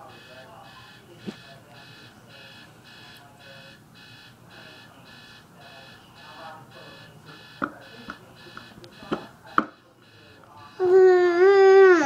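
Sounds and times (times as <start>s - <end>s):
electronic beeping: 0.0s - 10.9s
baby vocalising: 10.8s - 12.0s.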